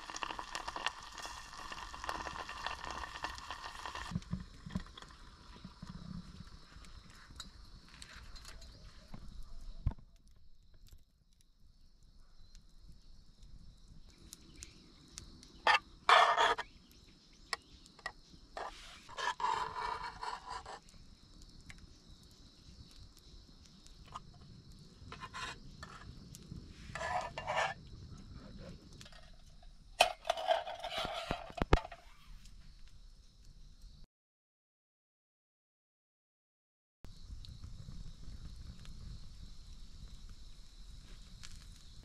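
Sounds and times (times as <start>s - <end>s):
campfire crackling: 0.0s - 34.0s, 37.1s - 42.0s
spoon scraping metal tin: 15.7s - 16.6s, 18.6s - 20.8s, 25.1s - 26.0s, 26.9s - 27.8s, 30.0s - 32.1s.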